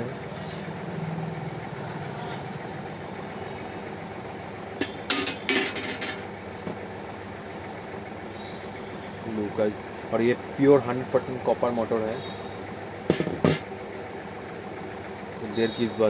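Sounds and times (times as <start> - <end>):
low background hum: 0.0 - 16.0
metal fan parts clattering: 4.6 - 6.9, 13.0 - 13.7.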